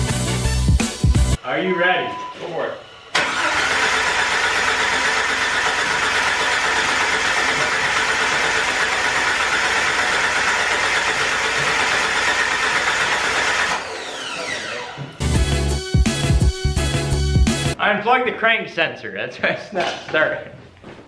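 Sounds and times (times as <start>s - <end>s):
starter winding down whine: 1.8s - 15.2s
engine cranking by starter motor: 3.1s - 15.0s.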